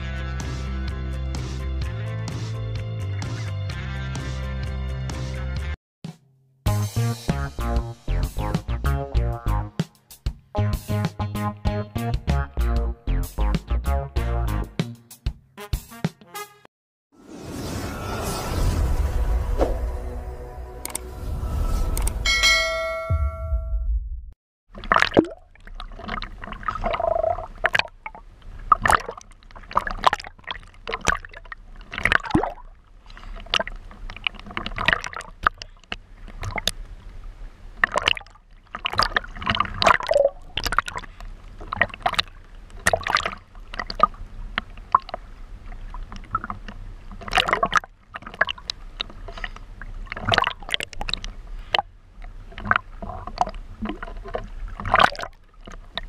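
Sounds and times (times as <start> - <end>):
sea water splashing and gurgling: 24.7 - 56.0.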